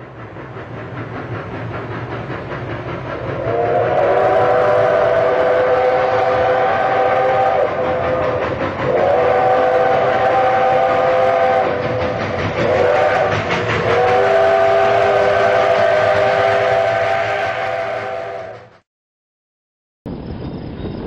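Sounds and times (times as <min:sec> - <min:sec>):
running train noise: 0:00.0 - 0:18.9, 0:20.1 - 0:21.0
steam locomotive chime whistle: 0:03.2 - 0:18.8.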